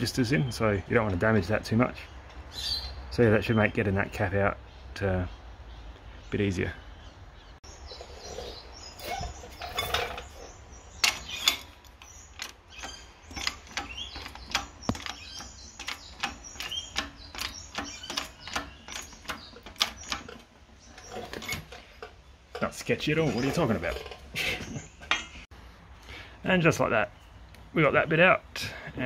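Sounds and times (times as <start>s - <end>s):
metal cracks: 9.1s - 24.3s.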